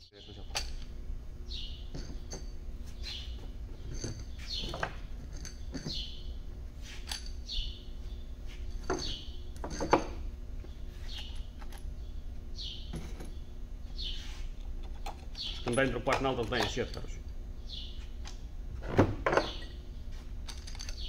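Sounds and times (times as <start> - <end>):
metallic clicks of bolts and caps: 0.5 - 0.9, 20.4 - 21.0
small bird chirping: 1.4 - 6.4, 7.4 - 9.6, 10.6 - 14.4, 15.0 - 15.8, 17.6 - 18.2.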